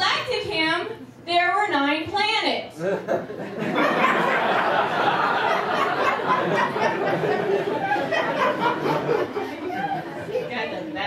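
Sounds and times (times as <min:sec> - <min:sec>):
audience laughing: 0:02.8 - 0:10.9.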